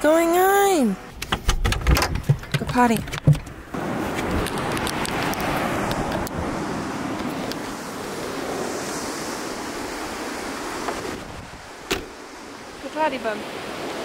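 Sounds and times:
wind buffeting microphone: 0:01.6 - 0:14.0
surf washing: 0:03.6 - 0:14.0
vehicle door thudding shut: 0:11.9 - 0:12.2.

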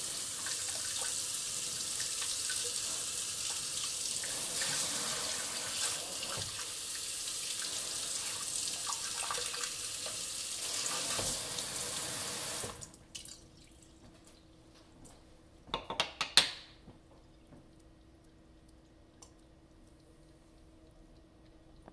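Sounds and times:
faucet spraying water: 0:00.0 - 0:12.9.

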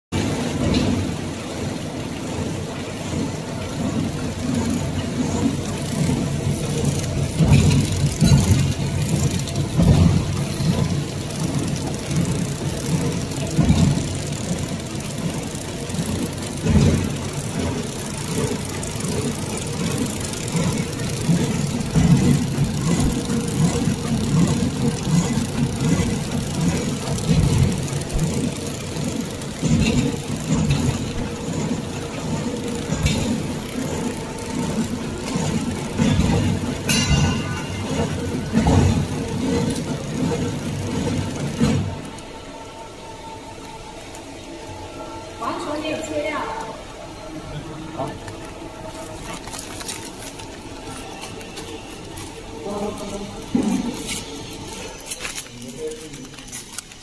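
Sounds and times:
packing machine hum: 0:00.1 - 0:57.0.

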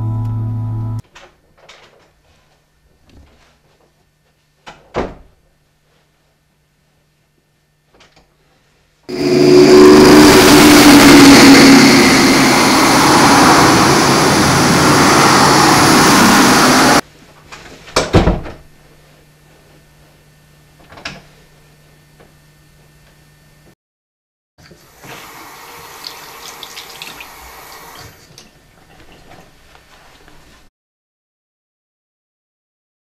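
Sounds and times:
freight train passing: 0:09.1 - 0:17.0.

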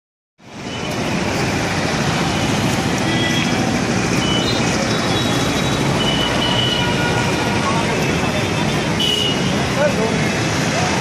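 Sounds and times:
traffic rumble: 0:00.4 - 0:11.0
murmur of voices: 0:07.2 - 0:11.0.

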